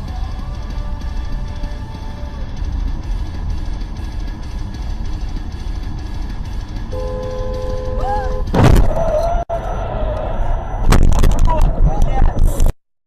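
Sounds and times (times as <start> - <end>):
road and engine rumble: 0.0 - 12.8
car horn: 6.9 - 8.6.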